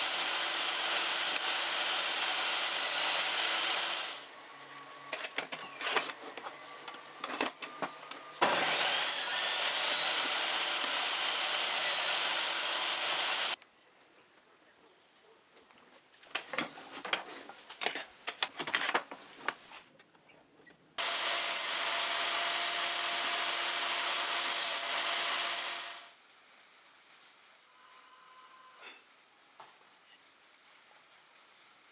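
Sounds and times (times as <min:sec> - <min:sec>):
table saw cutting wood: 0:00.0 - 0:04.3, 0:07.8 - 0:13.6, 0:21.0 - 0:26.2
knocks and clicks handling wood: 0:05.1 - 0:08.2, 0:16.3 - 0:20.1.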